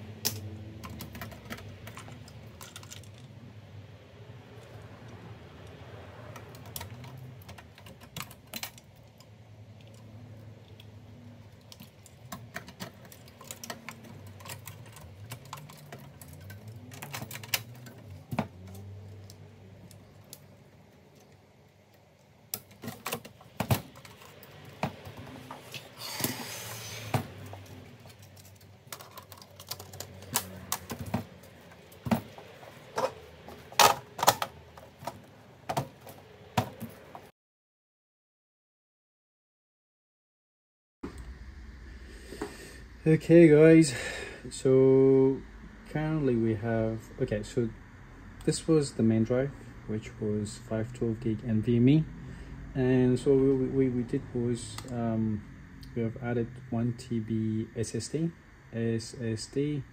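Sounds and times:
computer parts clicking and knocking: 0.2 - 3.3, 6.3 - 20.5, 22.5 - 26.4, 27.0 - 37.3.

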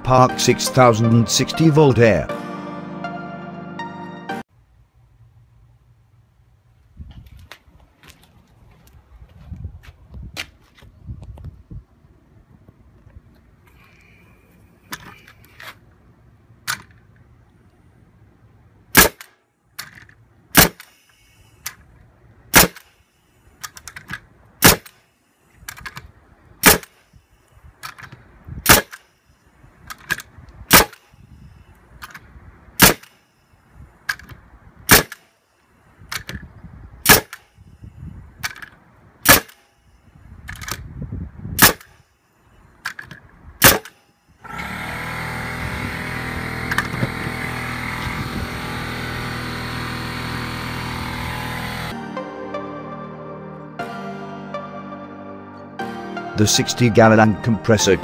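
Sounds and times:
background music: 0.0 - 4.5, 51.9 - 58.0
nail gun firing: 18.9 - 21.8, 22.5 - 23.0, 23.6 - 25.0, 26.6 - 27.0, 27.9 - 29.0, 30.0 - 31.2, 32.8 - 33.2, 34.9 - 35.3, 37.0 - 37.5, 39.2 - 39.7, 41.6 - 42.0, 43.6 - 45.3.

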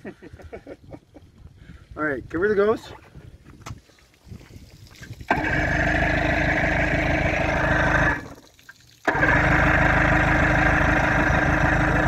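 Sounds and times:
outboard motor running: 5.2 - 12.0.

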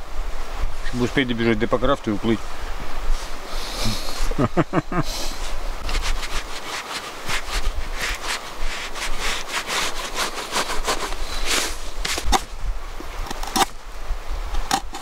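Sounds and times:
hand saw rasping through wood: 5.8 - 12.5, 14.7 - 15.0.

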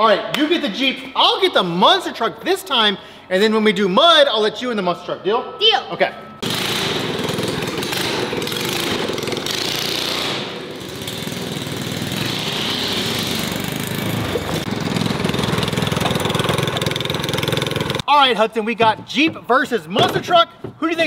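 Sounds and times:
small gasoline engines running: 6.4 - 18.0.

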